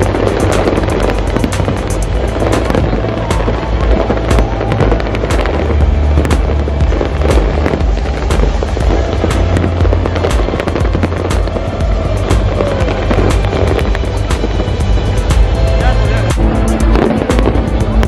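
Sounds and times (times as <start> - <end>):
fireworks bursting and crackling: 0.0 - 18.0.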